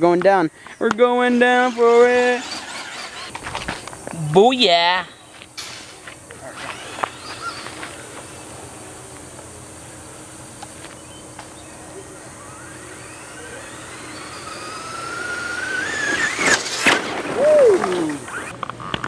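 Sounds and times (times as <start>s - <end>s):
rc truck motor whine: 0.6s - 4.1s, 5.4s - 19.0s.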